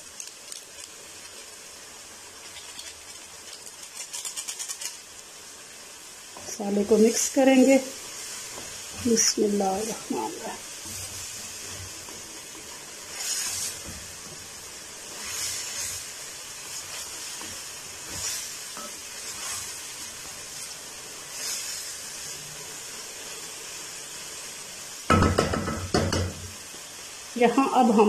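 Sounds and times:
vegetable mixture sizzling in pan: 0.0 - 28.0
wooden spatula scraping pan: 8.6 - 14.5.

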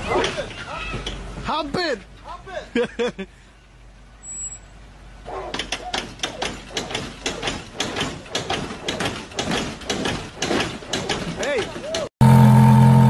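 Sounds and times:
car body knocking and scraping: 5.4 - 12.1.

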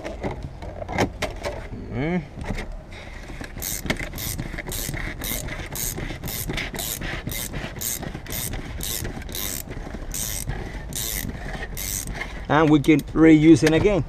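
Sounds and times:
ratchet winder clicking: 3.4 - 13.8.

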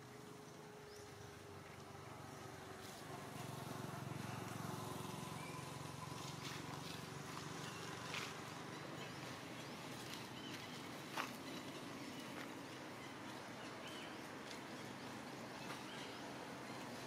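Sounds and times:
distant motor vehicle hum: 0.0 - 17.0.

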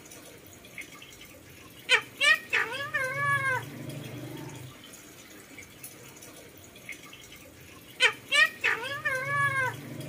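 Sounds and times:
parakeet sharp calls: 1.8 - 3.7, 7.9 - 9.8.

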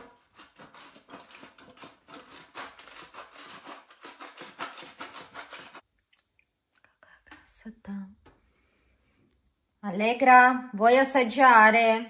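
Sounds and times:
cheese grating on metal grater: 0.0 - 5.8.

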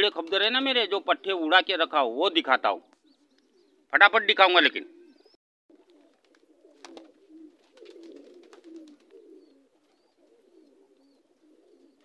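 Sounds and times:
pigeons cooing: 2.3 - 3.9, 4.8 - 12.0.

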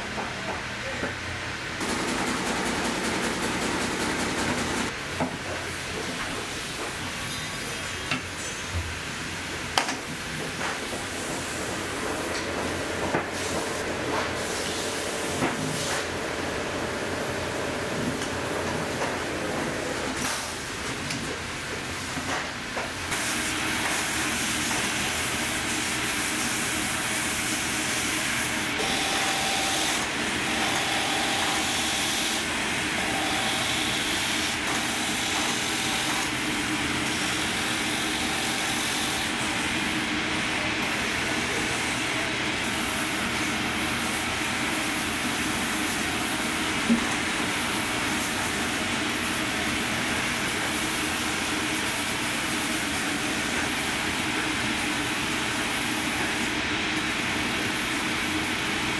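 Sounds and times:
sanding machine grinding sole: 28.4 - 39.8.

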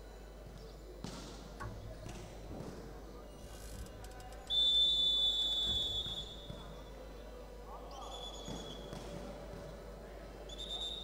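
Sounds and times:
hall background noise: 0.0 - 11.0
referee's whistle blast: 4.5 - 6.6.

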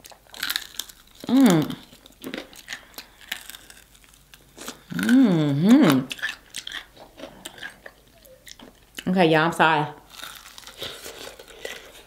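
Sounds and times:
crunchy chewing: 0.0 - 9.0, 10.0 - 12.0
closed-mouth humming: 4.7 - 6.2.

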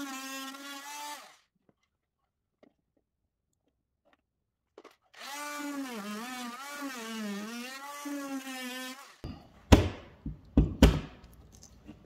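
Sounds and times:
power tool whining through drywall: 0.0 - 1.5, 4.8 - 9.3
sharp knocks and cracks: 9.7 - 11.4.

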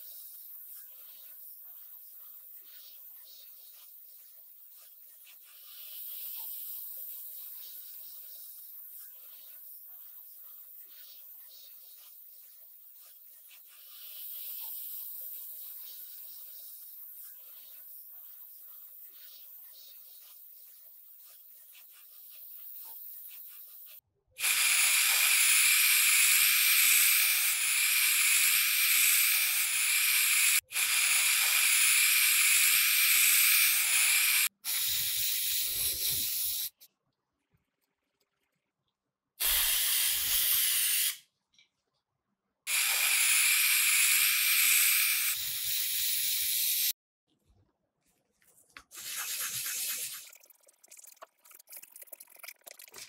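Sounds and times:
spray paint hissing: 0.0 - 36.9, 39.4 - 41.3, 42.7 - 47.0, 48.9 - 50.6
sandpaper rubbing on metal: 48.9 - 50.2.

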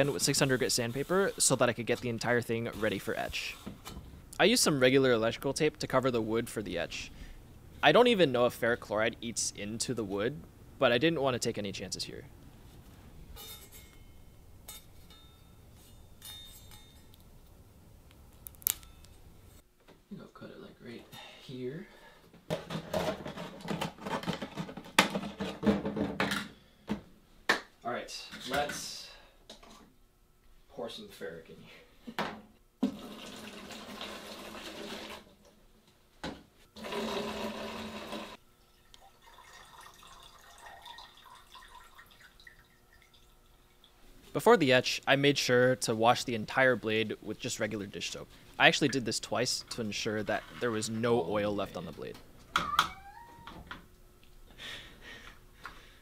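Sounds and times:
faint light clinks: 13.4 - 17.3
liquid pouring into a container: 32.8 - 35.3, 36.8 - 44.0.

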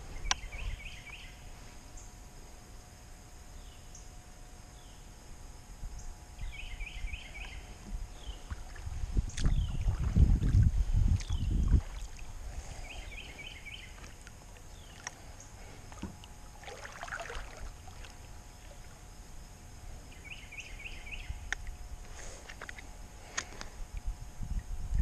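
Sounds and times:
small bird singing: 0.1 - 2.1, 3.5 - 5.1, 6.0 - 10.1, 10.9 - 11.7, 12.6 - 15.6, 20.0 - 21.6
paddle splash: 15.9 - 18.9.

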